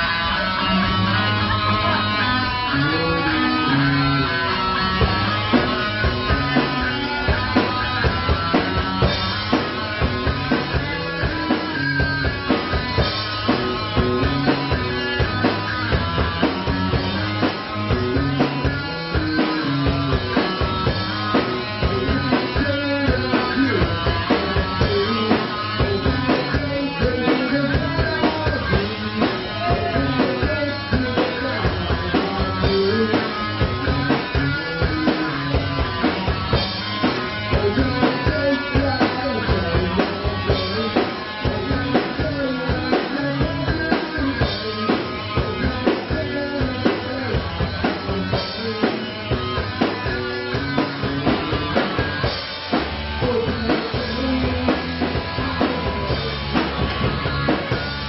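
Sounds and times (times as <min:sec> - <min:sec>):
bass guitar: 0:00.0 - 0:58.0
drum kit beat: 0:00.0 - 0:58.0
electric guitar: 0:00.0 - 0:58.0.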